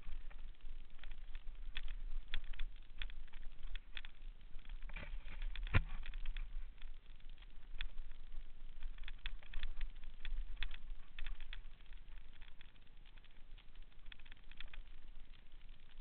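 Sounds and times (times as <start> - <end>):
low steady rumble: 0.0 - 16.0
bike rattling over rocks: 1.0 - 6.9.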